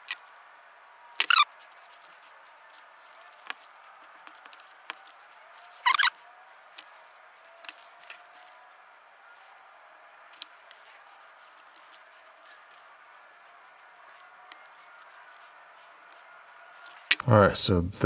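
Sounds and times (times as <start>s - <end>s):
small clicks and rustles: 1.1s - 17.3s
wire stripper squeaky scrapes: 1.2s - 1.6s, 5.7s - 6.2s.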